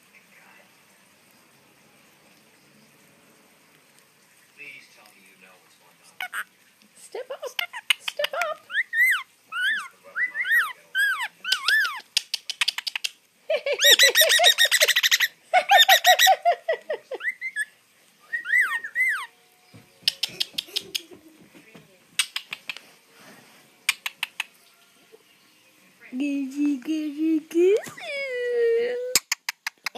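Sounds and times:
bird chirping: 7.5s - 13.2s, 13.8s - 16.4s, 17.2s - 21.1s, 22.2s - 22.8s.

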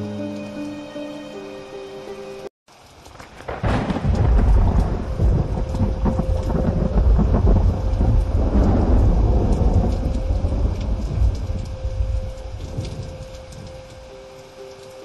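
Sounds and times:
wind buffeting microphone: 3.6s - 14.1s.

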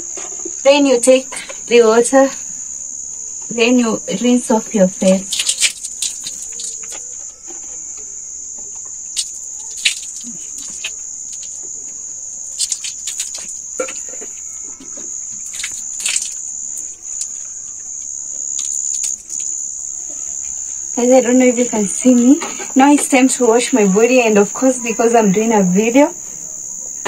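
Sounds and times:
crickets trilling: 0.0s - 27.0s
water splashing from basin: 5.2s - 7.0s, 9.2s - 11.6s, 12.5s - 14.4s, 15.3s - 17.4s.

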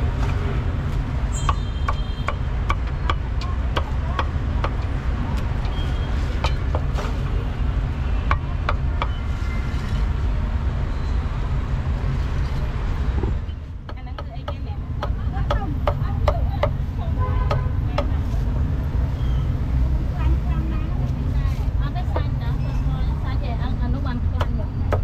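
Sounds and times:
street traffic rumble: 0.0s - 25.0s
cleaver chopping on wooden block: 1.5s - 4.9s.

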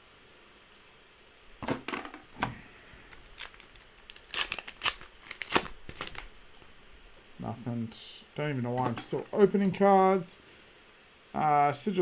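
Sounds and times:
cards being handled: 3.1s - 6.3s.

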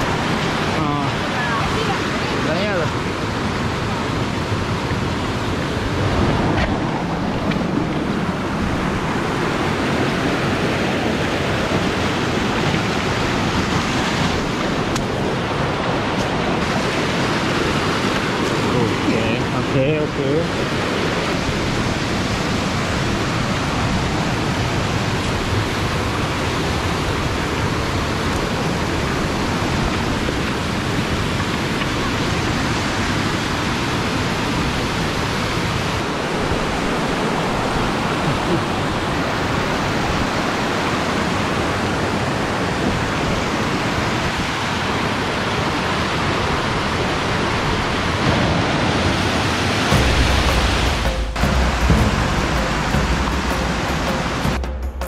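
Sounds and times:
waterfall rushing over rock: 0.0s - 54.6s.

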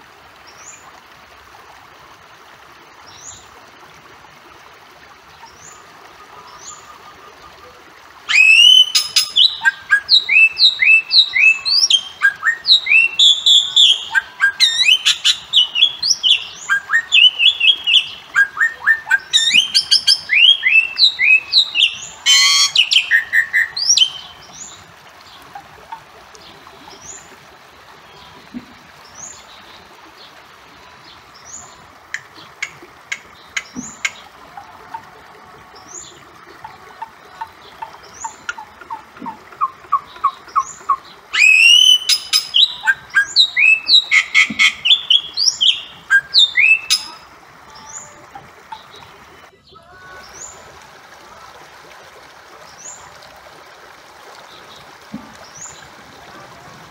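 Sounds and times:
bird whistled calls and chirps: 8.3s - 24.3s, 39.6s - 47.2s.

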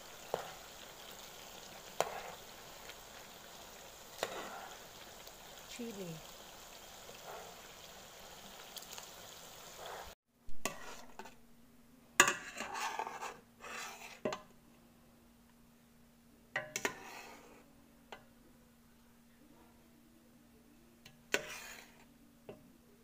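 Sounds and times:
sauce simmering with a hiss: 0.0s - 11.3s, 12.6s - 14.2s, 16.7s - 17.7s, 21.3s - 22.1s
metal spatula scraping a steel pot: 1.9s - 2.5s, 4.1s - 4.8s, 9.8s - 11.4s, 12.2s - 14.4s, 16.6s - 17.6s, 21.3s - 22.1s
faint steady hum: 14.4s - 21.3s.

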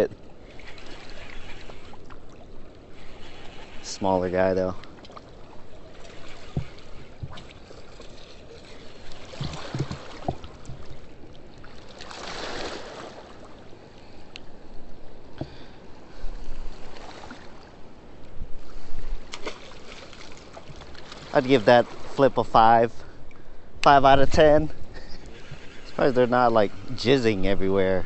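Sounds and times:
rushing river water: 0.0s - 13.8s.

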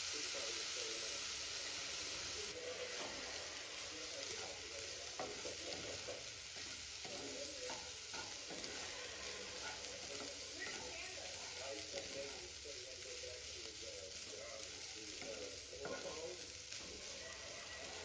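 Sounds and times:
rice sizzling in a frying pan: 0.0s - 18.0s
spatula scraping and knocking pan: 2.9s - 12.4s, 15.2s - 17.2s.

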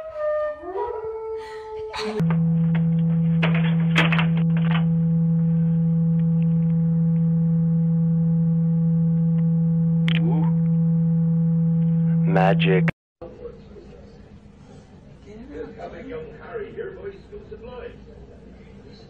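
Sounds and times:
loud electrical hum: 2.0s - 13.0s.

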